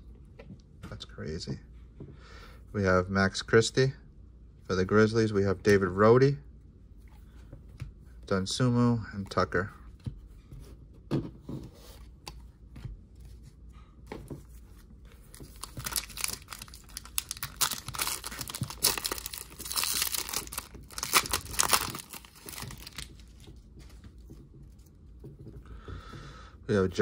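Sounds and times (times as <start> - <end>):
foil wrapper tearing and crinkling: 15.5 - 23.3.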